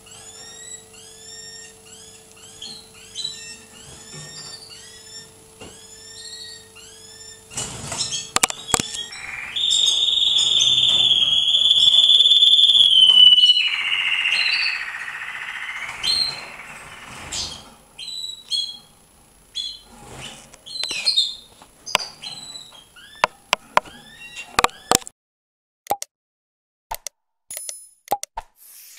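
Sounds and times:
canaries chirping and singing: 0:00.0 - 0:18.9, 0:19.5 - 0:24.9
canary trill: 0:00.0 - 0:25.0
sharp clicks: 0:25.9 - 0:26.1, 0:26.9 - 0:28.3.

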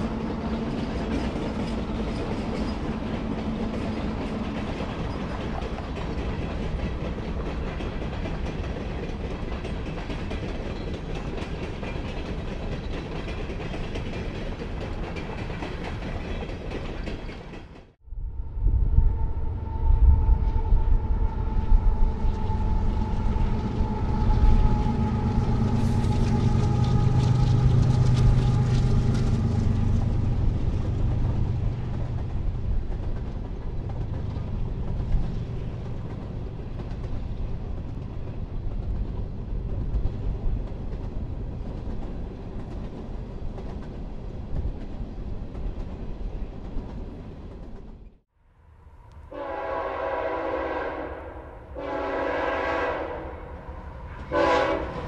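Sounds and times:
freight train rumbling past: 0:00.0 - 0:55.0
locomotive air horn: 0:19.0 - 0:29.2, 0:49.3 - 0:55.0.

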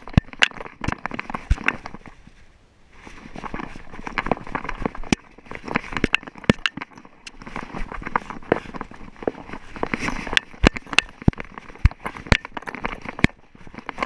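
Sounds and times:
dog paws on gravel: 0:03.0 - 0:14.0.

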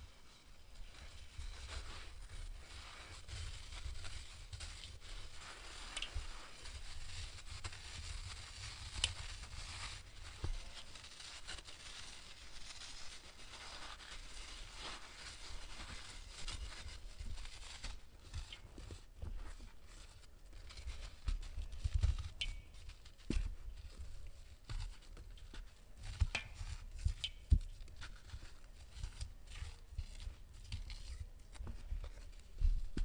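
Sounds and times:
small cracks: 0:05.9 - 0:06.2.

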